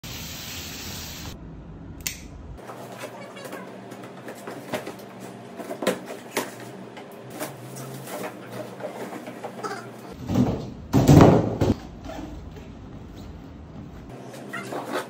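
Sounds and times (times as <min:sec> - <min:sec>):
cardboard rustling and scraping: 0:07.3 - 0:09.9.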